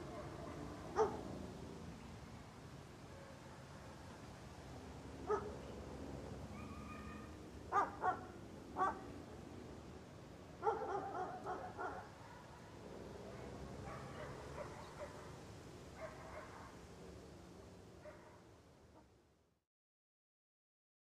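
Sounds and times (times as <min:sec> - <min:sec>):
puppy yapping: 0:06.5 - 0:08.2.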